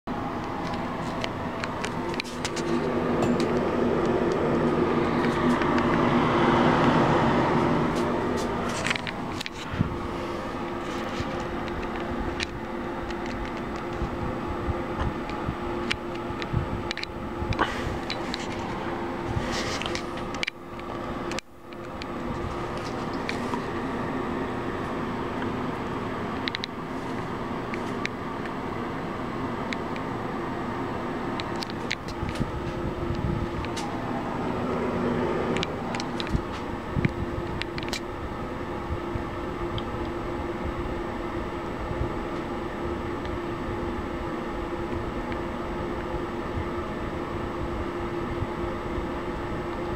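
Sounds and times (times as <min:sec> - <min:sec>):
exhaust fan humming and whirring: 0:00.1 - 0:49.9.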